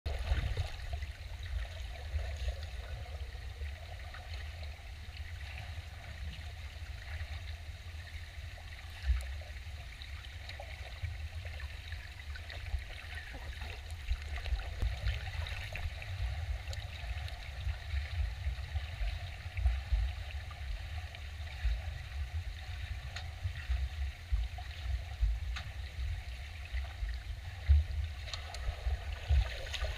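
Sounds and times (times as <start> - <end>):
muffled underwater rumble: 0.1 - 29.9
faint splashes and clicks: 23.0 - 24.9, 25.5 - 25.9, 27.6 - 29.9.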